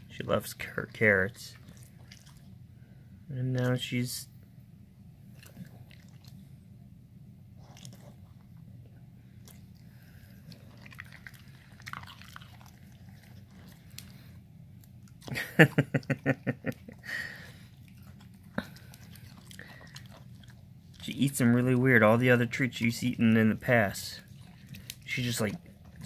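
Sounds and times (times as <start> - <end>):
dog chewing cucumber: 0.0 - 2.6, 5.2 - 6.6, 7.6 - 8.6, 9.3 - 15.4, 16.7 - 26.0.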